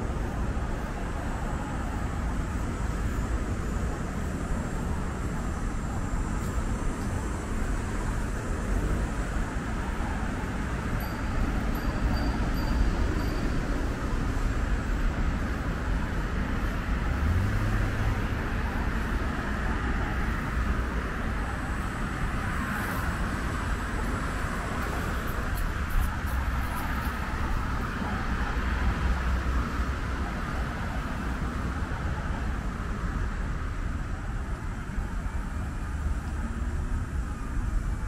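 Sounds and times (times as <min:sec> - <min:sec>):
road traffic passing: 0:00.0 - 0:38.0.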